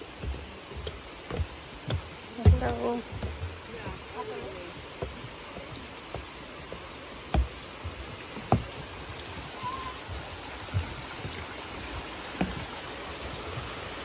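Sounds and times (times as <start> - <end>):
creek running over rocks: 0.0 - 14.0
dull thumps: 0.8 - 3.6.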